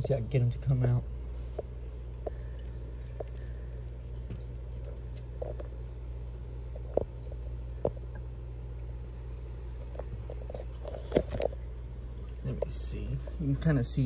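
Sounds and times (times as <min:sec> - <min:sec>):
aquarium equipment humming: 0:00.0 - 0:14.0.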